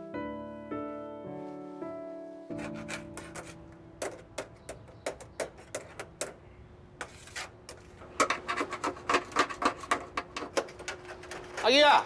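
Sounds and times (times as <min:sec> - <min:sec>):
metal scraper scraping wax off metal: 0:02.5 - 0:06.1, 0:07.0 - 0:11.8.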